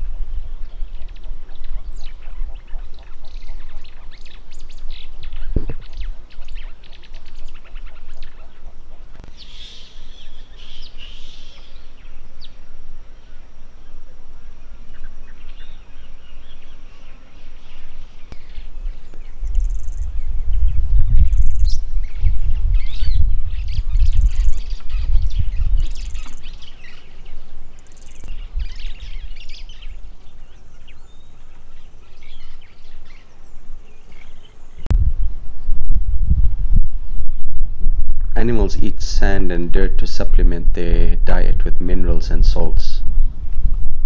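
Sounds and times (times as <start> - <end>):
wild birds chirping and trilling: 0.0 - 34.9
low uneven rumble: 0.0 - 44.0.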